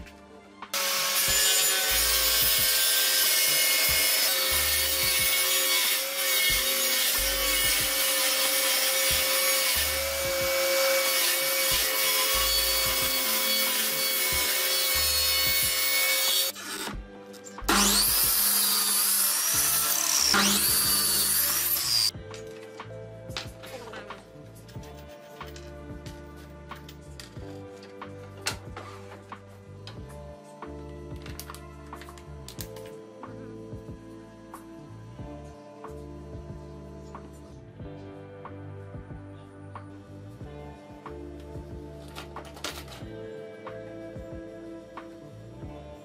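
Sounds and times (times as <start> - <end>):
table saw ripping wood: 0.8 - 22.1, 42.0 - 43.1.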